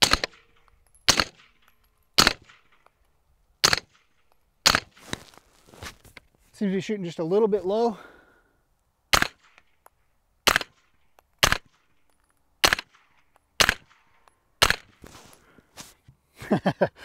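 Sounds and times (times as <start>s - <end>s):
suppressed gunshots: 0.0s - 2.8s, 3.6s - 5.0s, 9.1s - 9.7s, 10.4s - 11.8s, 12.6s - 15.0s.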